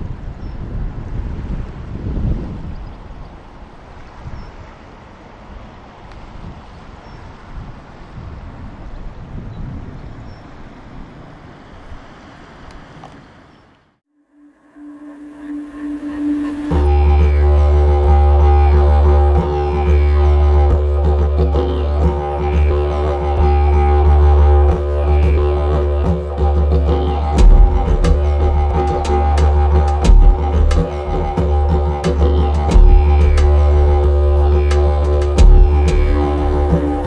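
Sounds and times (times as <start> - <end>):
deep drone with sustained tones: 14.1 - 37.0
sharp percussive hits: 32.0 - 33.9, 34.7 - 37.0.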